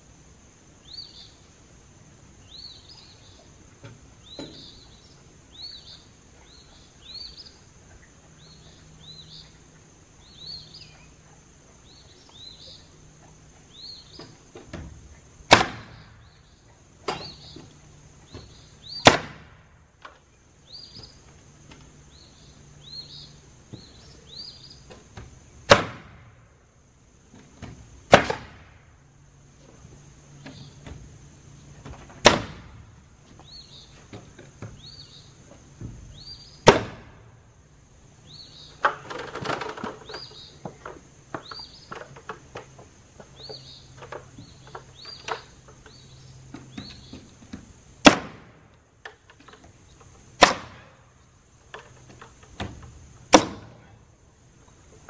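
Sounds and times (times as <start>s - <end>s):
birds chirping: 0.0s - 25.7s, 26.4s - 55.0s
insects droning: 0.0s - 55.0s
nail gun firing: 15.5s - 16.1s, 19.0s - 19.6s, 25.7s - 26.3s, 28.1s - 28.7s, 32.2s - 32.8s, 36.6s - 37.2s, 48.0s - 48.6s, 50.4s - 51.0s, 53.3s - 53.8s
rustling clatter: 38.8s - 46.0s.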